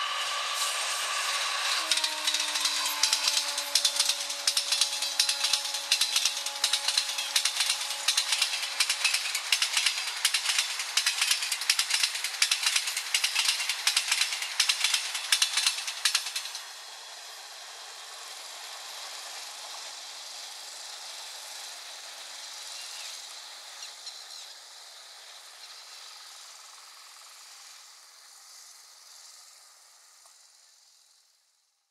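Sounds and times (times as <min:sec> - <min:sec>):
hiss of receding train: 0:00.0 - 0:31.7
train wheels clattering over rail joints: 0:01.2 - 0:16.7.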